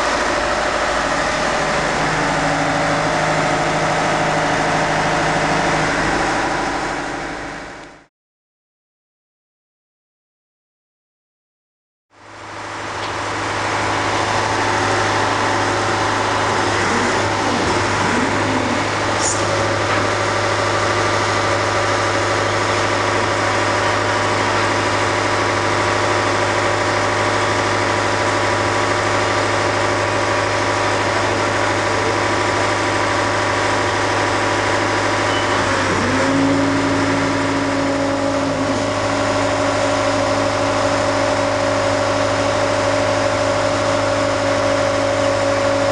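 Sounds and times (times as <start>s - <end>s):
large engine running: 0.0s - 8.1s, 12.2s - 45.9s
steady machine note: 13.4s - 26.7s, 33.4s - 45.9s
brief high squeak: 35.3s - 35.7s.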